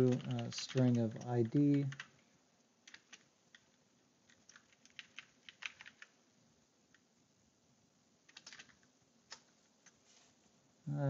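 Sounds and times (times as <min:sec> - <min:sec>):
keystrokes on computer keyboard: 0:00.0 - 0:02.2, 0:02.8 - 0:06.2, 0:08.2 - 0:10.0.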